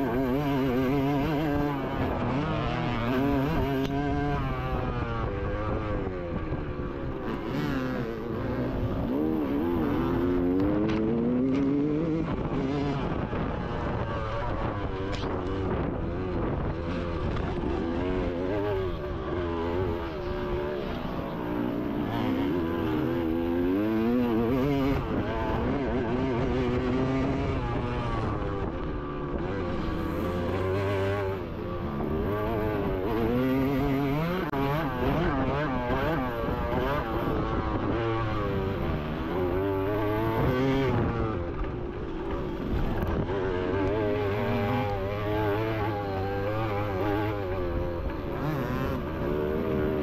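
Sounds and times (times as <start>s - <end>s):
motocross bike engines revving: 0.0s - 50.0s.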